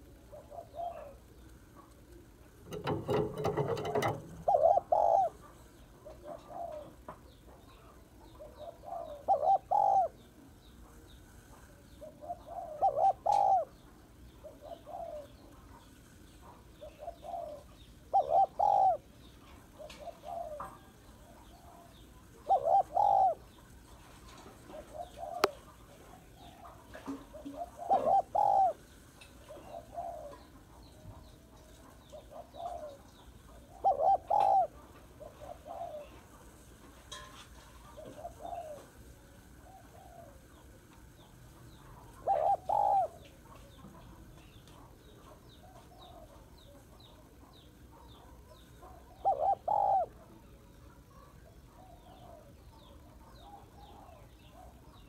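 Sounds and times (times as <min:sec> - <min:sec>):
dove cooing: 0:00.0 - 0:11.0, 0:11.7 - 0:15.8, 0:16.4 - 0:23.6, 0:24.3 - 0:36.6, 0:37.8 - 0:44.1, 0:44.8 - 0:55.0.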